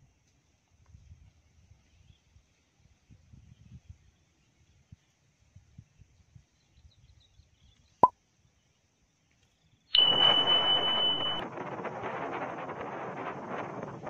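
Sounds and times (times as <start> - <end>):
steady high tone: 10.0 - 11.4
wind buffeting microphone: 11.4 - 14.0.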